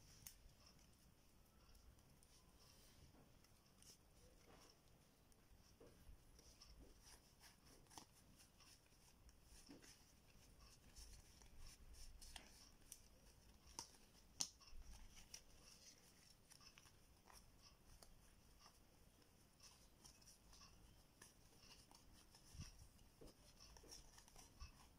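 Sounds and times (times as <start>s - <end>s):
playing cards rustling and clicking: 5.6s - 18.8s, 19.7s - 24.9s.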